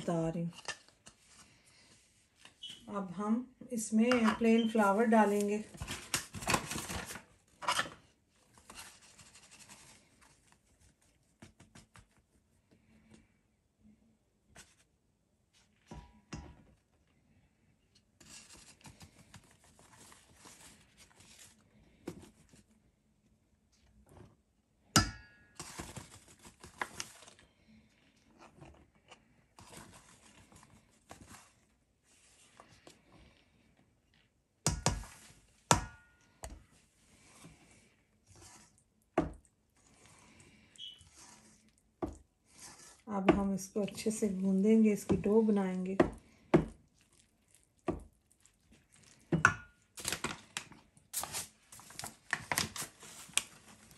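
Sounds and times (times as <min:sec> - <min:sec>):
metal spoon stirring: 0:40.8 - 0:43.0.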